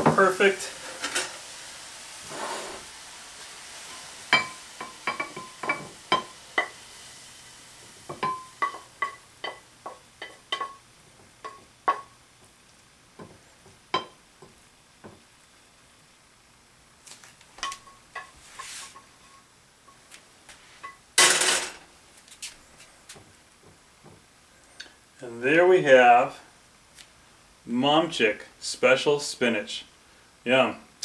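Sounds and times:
wooden spatula scraping pan: 0:02.2 - 0:02.9, 0:18.3 - 0:19.4.

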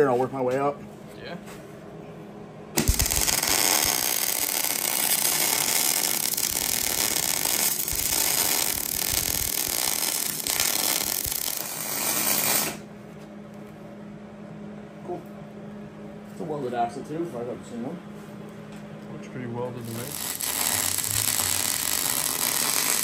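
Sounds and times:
welder arc crackling: 0:02.8 - 0:12.8, 0:19.8 - 0:23.0.

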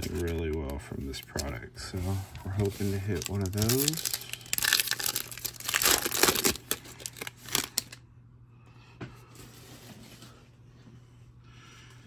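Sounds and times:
foil wrapper crinkling: 0:00.0 - 0:01.6, 0:02.4 - 0:08.0.

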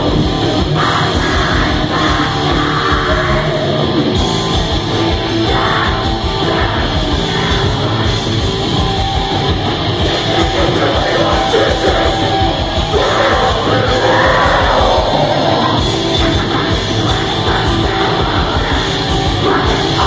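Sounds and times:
person singing into microphone: 0:00.0 - 0:04.0, 0:10.0 - 0:20.0
distorted electric guitar: 0:00.0 - 0:20.0
drums: 0:00.0 - 0:20.0.

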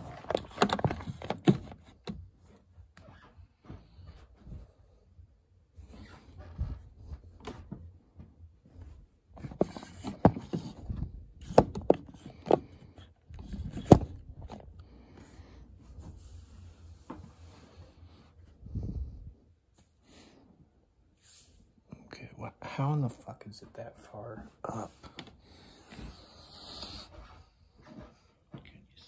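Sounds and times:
camera handling rustling and bumping: 0:00.0 - 0:02.2, 0:13.4 - 0:14.8.

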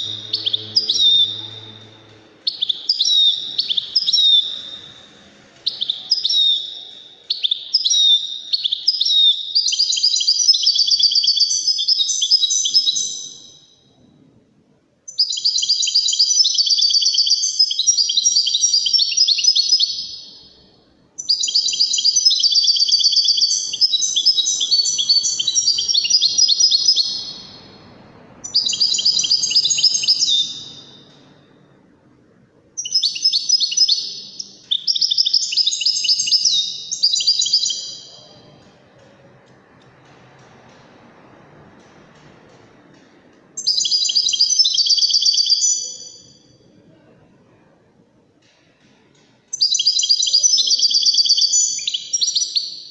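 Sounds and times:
goldfinch twittering song: 0:00.0 - 0:04.8, 0:21.2 - 0:27.6, 0:28.4 - 0:31.1.

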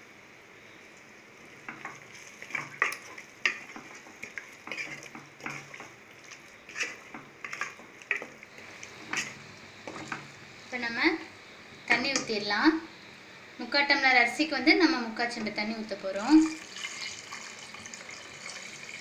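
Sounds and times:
faint sizzle: 0:00.0 - 0:19.0
spatula scraping a pot: 0:01.7 - 0:10.3.

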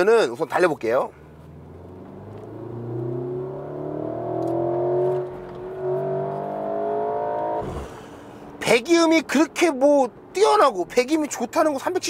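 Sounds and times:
car engine accelerating hard: 0:01.4 - 0:08.5.

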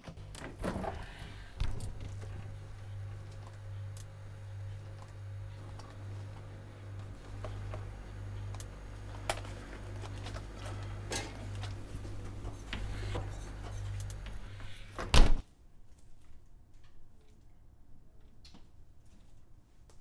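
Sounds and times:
fridge door shutting: 0:00.0 - 0:03.4, 0:09.0 - 0:15.4
refrigerator hum: 0:00.0 - 0:15.4.

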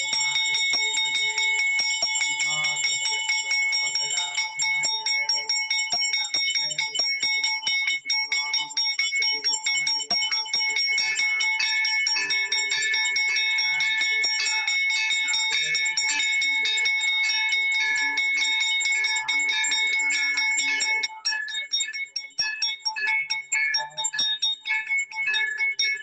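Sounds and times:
temple bells ringing rapidly: 0:00.0 - 0:21.1.

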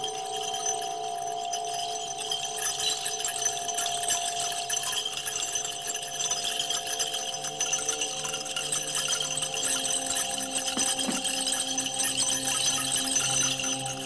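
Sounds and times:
singing bowls ringing: 0:00.0 - 0:14.0
hand bells jingling: 0:04.6 - 0:14.0.

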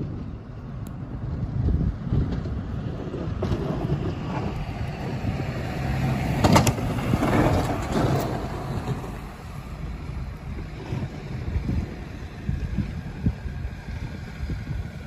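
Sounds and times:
low rumble: 0:00.0 - 0:15.0
wind buffeting microphone: 0:00.0 - 0:15.0
car driving past: 0:03.3 - 0:12.8.

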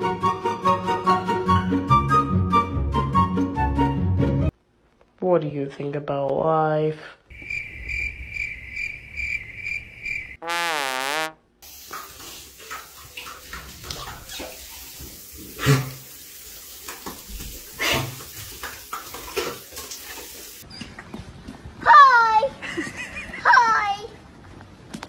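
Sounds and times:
cricket chirping: 0:07.3 - 0:10.4
shower running: 0:11.6 - 0:20.6.

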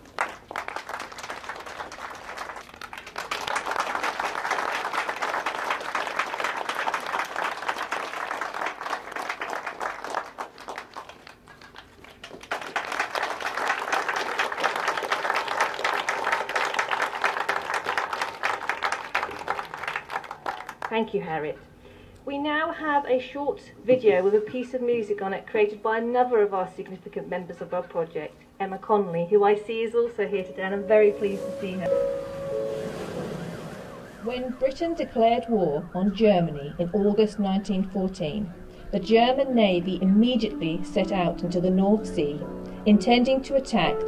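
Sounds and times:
crowd applauding: 0:00.0 - 0:20.9.

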